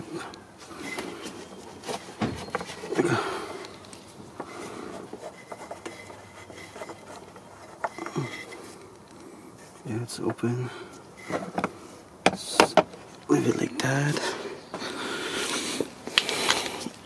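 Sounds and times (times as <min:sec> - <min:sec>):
gloved hand rubbing cap: 0:00.6 - 0:11.9.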